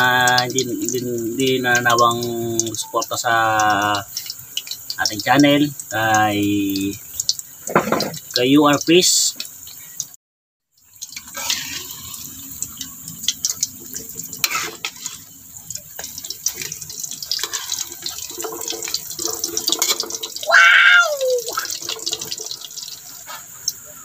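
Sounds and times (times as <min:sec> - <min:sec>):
hot oil sizzling and crackling: 0:00.0 - 0:24.0
short falling cry: 0:20.4 - 0:21.7.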